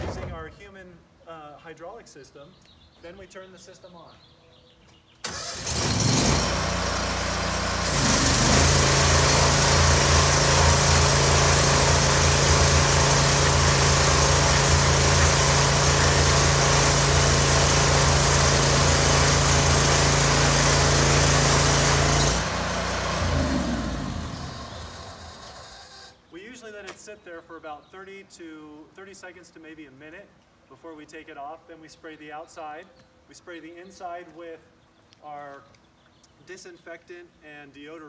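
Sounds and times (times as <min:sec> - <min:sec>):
machine hum: 0:05.7 - 0:26.0
high-pressure water spray hissing: 0:06.2 - 0:25.4.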